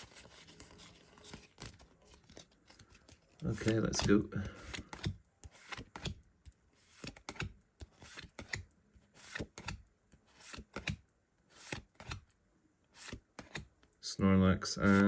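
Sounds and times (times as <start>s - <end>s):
cards swishing and flicking: 3.5s - 6.2s, 6.8s - 12.2s.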